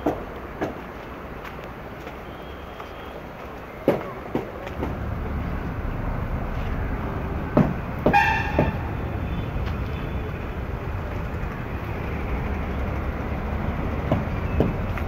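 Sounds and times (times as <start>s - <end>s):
diesel engine idling: 4.6s - 15.0s
knocks: 7.6s - 8.8s.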